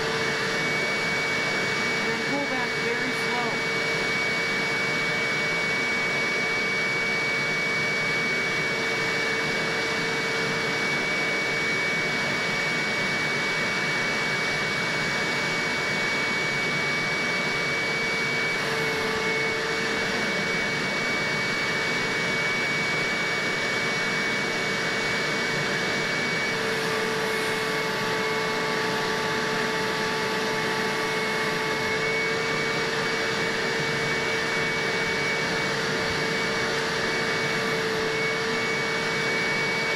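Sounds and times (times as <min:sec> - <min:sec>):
upholstery shampooer motor whine: 0:00.0 - 0:39.9.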